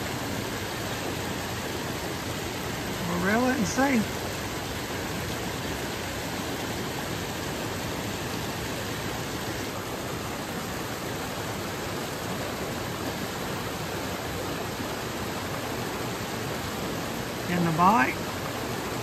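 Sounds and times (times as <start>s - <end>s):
stream rushing over rocks: 0.0s - 19.0s.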